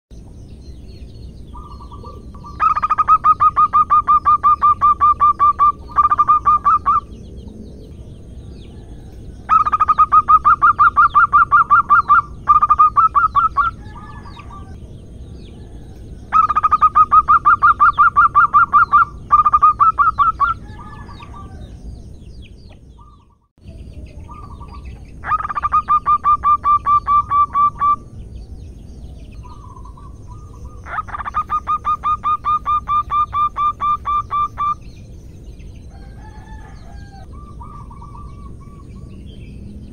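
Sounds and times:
dove cooing: 0:01.6 - 0:07.2, 0:08.7 - 0:14.8, 0:15.6 - 0:21.7, 0:24.3 - 0:28.0, 0:29.4 - 0:34.8, 0:36.0 - 0:39.0.

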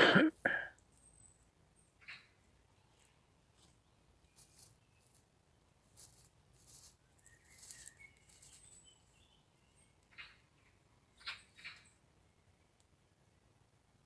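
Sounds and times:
faint high bird chirps: 0:00.8 - 0:02.4, 0:07.0 - 0:12.8
faint rustles: 0:02.8 - 0:09.2.

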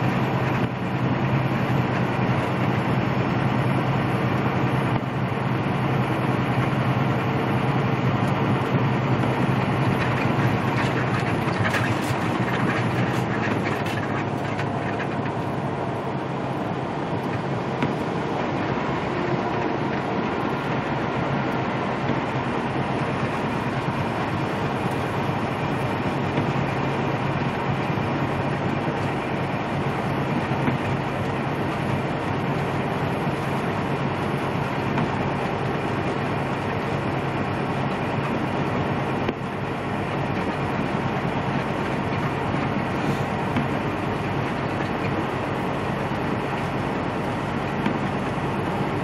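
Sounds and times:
diesel engine low hum: 0:00.0 - 0:49.0
tyres hissing on wet road: 0:20.4 - 0:49.0.

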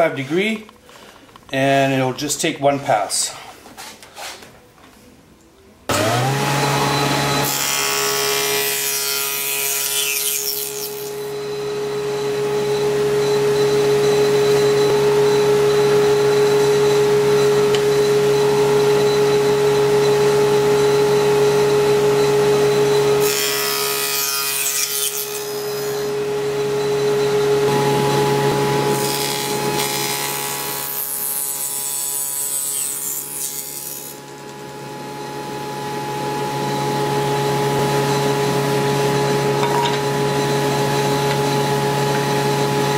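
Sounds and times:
table saw running: 0:05.9 - 0:42.9
saw blade cutting wood: 0:23.2 - 0:26.2, 0:28.9 - 0:34.4.

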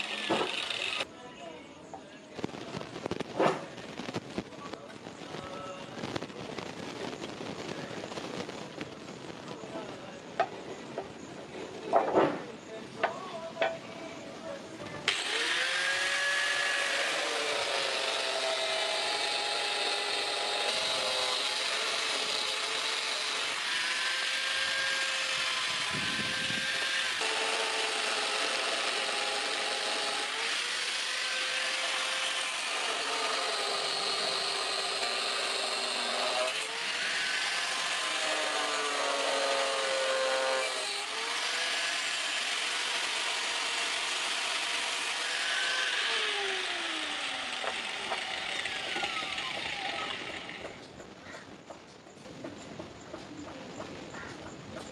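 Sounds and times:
angle grinder motor whine: 0:00.0 - 0:01.1, 0:15.1 - 0:39.2, 0:40.1 - 0:50.8.

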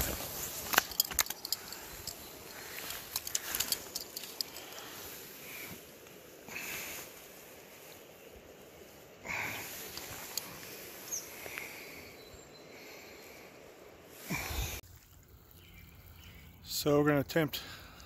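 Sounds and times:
handling clicks and rustles: 0:00.0 - 0:06.4, 0:09.6 - 0:11.7
steady outdoor hiss: 0:00.0 - 0:18.0.

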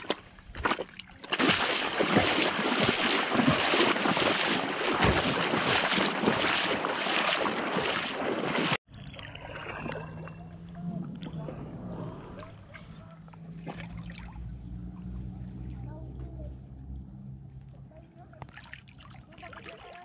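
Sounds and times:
boots splashing through water: 0:00.0 - 0:08.8.

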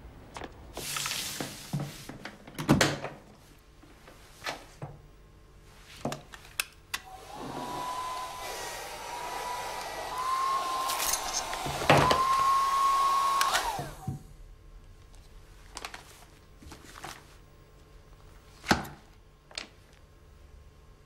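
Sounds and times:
laptop fan whirring with whine: 0:07.0 - 0:14.2.

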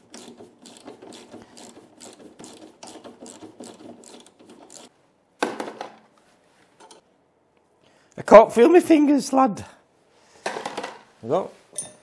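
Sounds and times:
hand tool clicking on bolts: 0:00.0 - 0:04.9.

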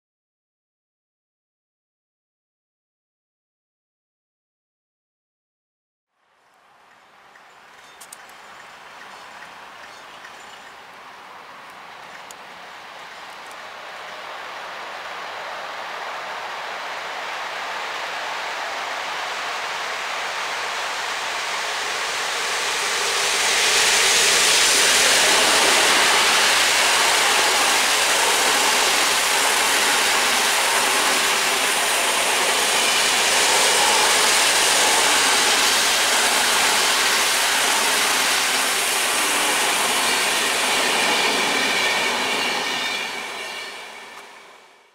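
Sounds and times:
train wheels rushing on rail: 0:06.5 - 0:44.9
faint brake squeal: 0:40.9 - 0:44.5.

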